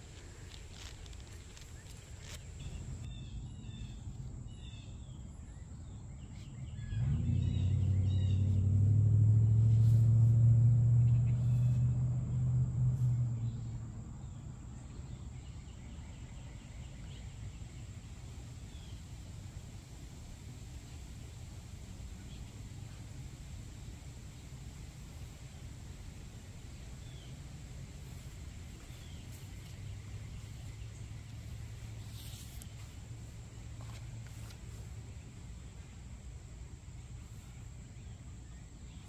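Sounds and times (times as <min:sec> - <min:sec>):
birds chirping: 0:00.0 - 0:08.8, 0:27.0 - 0:39.0
low engine drone: 0:06.6 - 0:15.5.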